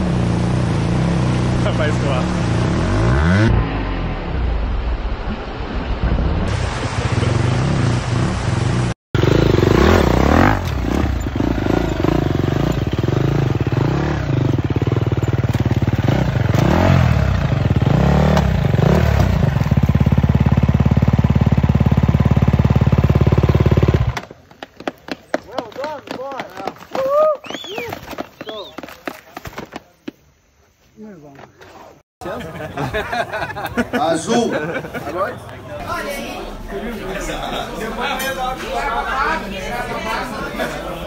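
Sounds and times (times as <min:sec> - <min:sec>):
motorcycle engine revving: 0:00.0 - 0:04.4, 0:06.9 - 0:24.2.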